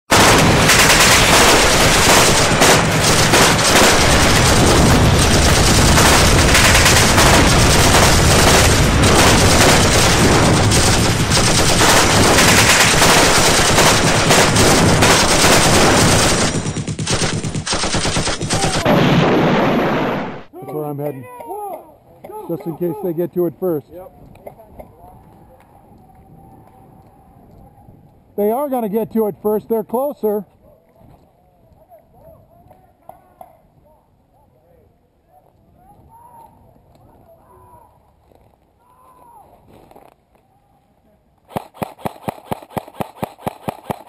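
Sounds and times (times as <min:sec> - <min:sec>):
machine-gun fire: 0:00.1 - 0:20.5, 0:41.5 - 0:44.0.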